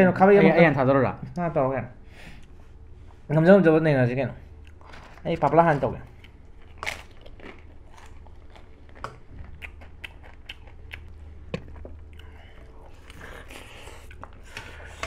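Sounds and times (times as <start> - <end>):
sharp crunches and clicks: 4.6 - 12.3
chewing and biting: 6.1 - 14.9.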